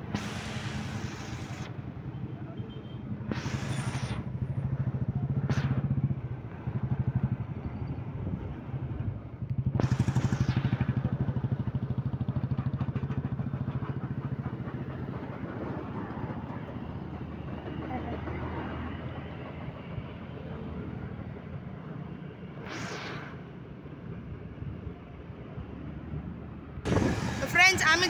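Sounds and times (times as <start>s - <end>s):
motorbike engine running: 9.4s - 15.0s
wind buffeting microphone: 26.8s - 28.0s.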